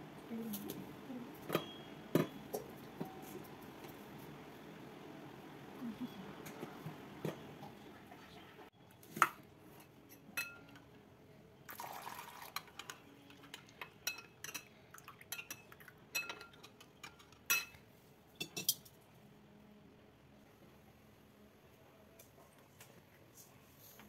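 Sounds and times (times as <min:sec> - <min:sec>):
spoon clinking in ceramic bowl: 0:10.1 - 0:10.8.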